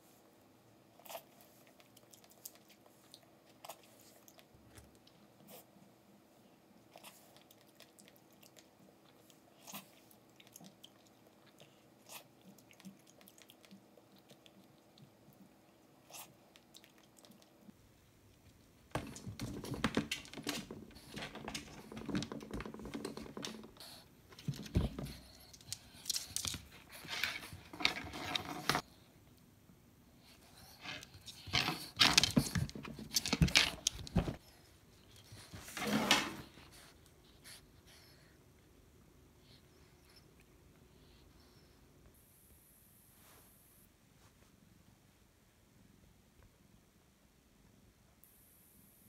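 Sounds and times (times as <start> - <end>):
chewing: 1.0 - 5.3, 6.9 - 18.6.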